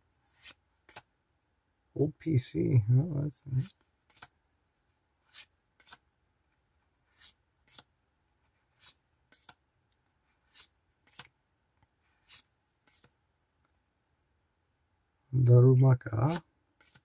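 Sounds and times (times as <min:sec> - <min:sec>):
trading cards swishing and snapping: 0:00.3 - 0:01.1, 0:03.6 - 0:04.4, 0:05.2 - 0:06.0, 0:07.1 - 0:07.9, 0:08.6 - 0:09.6, 0:10.4 - 0:11.3, 0:12.2 - 0:13.2, 0:16.3 - 0:17.0.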